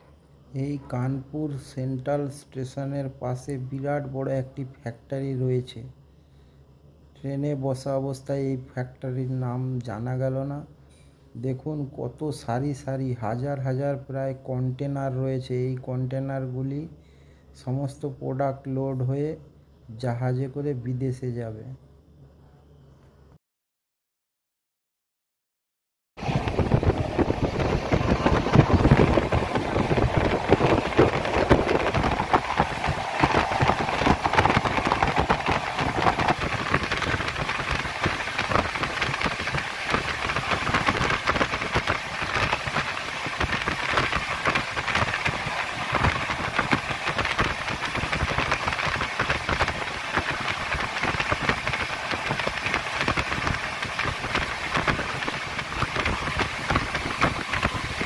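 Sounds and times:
mid-pitched hum: 0:26.2 - 0:58.0.

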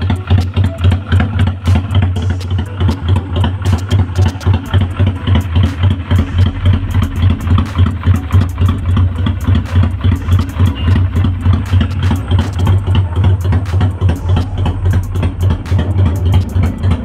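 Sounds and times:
motorcycle engine idling: 0:00.0 - 0:17.0.

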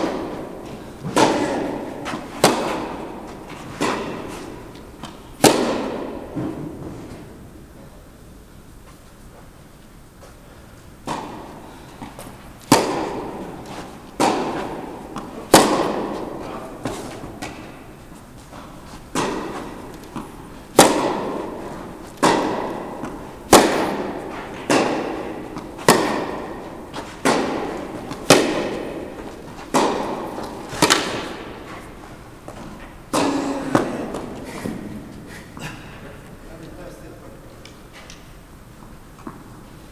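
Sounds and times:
tennis ball struck by rackets: 0:00.0 - 0:07.0, 0:11.0 - 0:35.2
tennis ball bouncing: 0:00.0 - 0:07.4, 0:11.0 - 0:35.2, 0:38.8 - 0:39.6.

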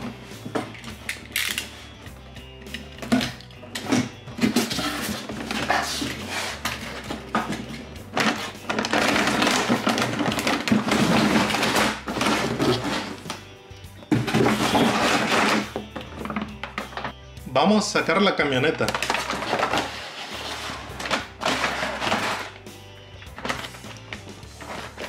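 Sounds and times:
plastic packaging crinkling: 0:08.2 - 0:13.2, 0:18.8 - 0:22.6.

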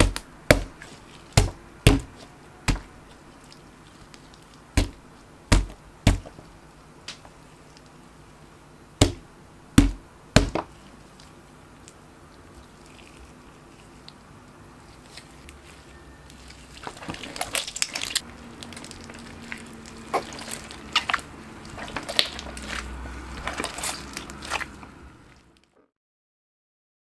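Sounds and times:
slime squelching: 0:00.0 - 0:25.7.

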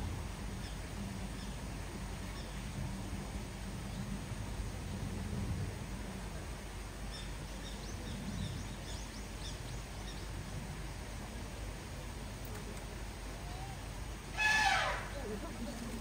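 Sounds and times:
outdoor background hiss: 0:00.0 - 0:16.0
small birds chirping: 0:07.0 - 0:11.4.

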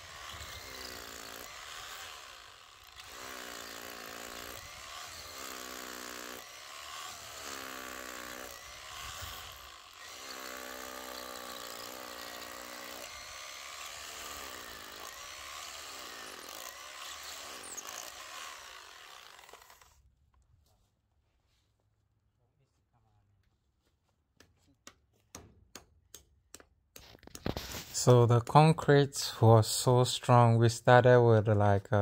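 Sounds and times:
rotary hammer drilling concrete: 0:00.0 - 0:20.0.

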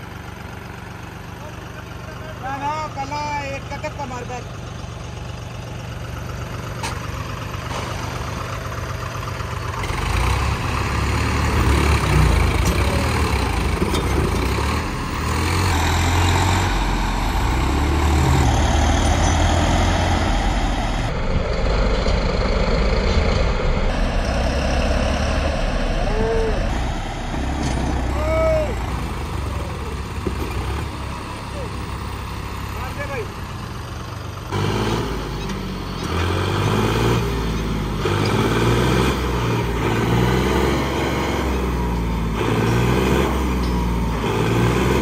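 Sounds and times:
diesel tractor engines under load: 0:00.0 - 0:45.0.

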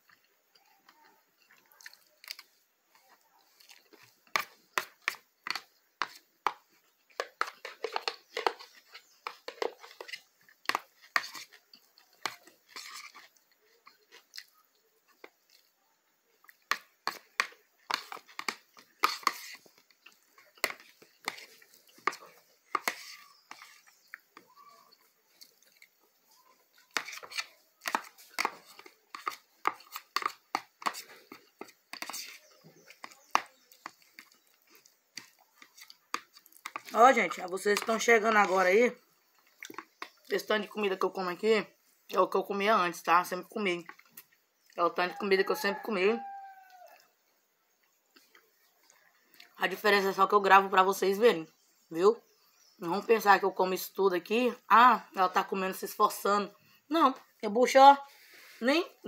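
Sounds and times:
person chewing wetly: 0:00.0 - 0:36.9, 0:39.1 - 0:40.3, 0:47.8 - 0:49.6.

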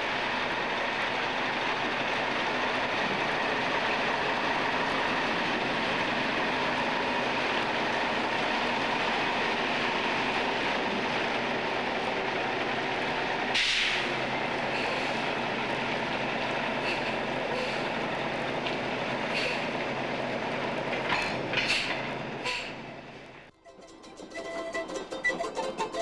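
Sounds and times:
truck engine running: 0:00.0 - 0:23.5
short hiss: 0:13.6 - 0:14.1.

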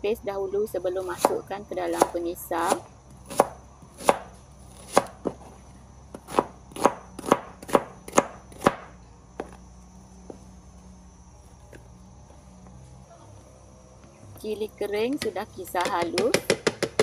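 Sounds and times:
knife chopping on cutting board: 0:01.2 - 0:05.4, 0:06.2 - 0:09.5.

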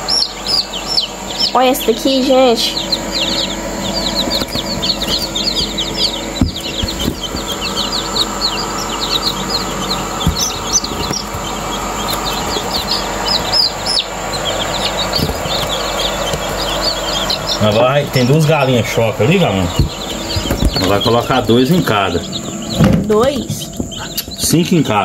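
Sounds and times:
chicks peeping: 0:00.0 - 0:25.0.

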